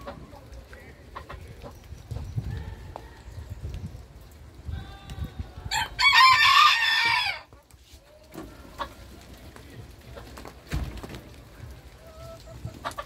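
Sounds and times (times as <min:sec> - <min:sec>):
rooster crowing: 0:05.7 - 0:07.4
soft chicken calls: 0:11.6 - 0:13.0.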